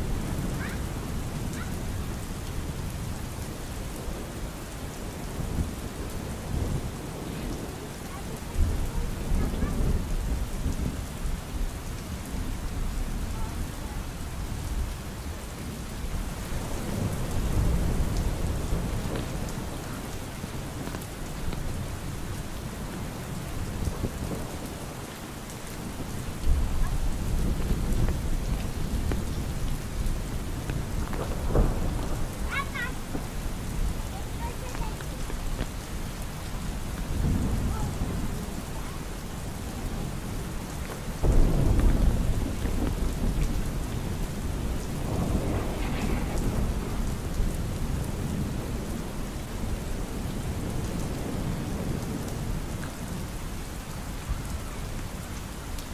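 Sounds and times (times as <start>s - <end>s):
steady rain falling: 0.0s - 55.9s
thunder rolling: 25.8s - 35.8s, 41.2s - 52.0s.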